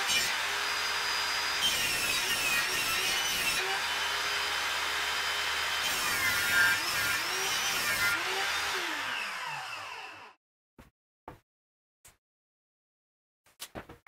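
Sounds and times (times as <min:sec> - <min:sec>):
saw blade whining down: 0:00.0 - 0:10.4
table saw ripping wood: 0:00.0 - 0:10.4.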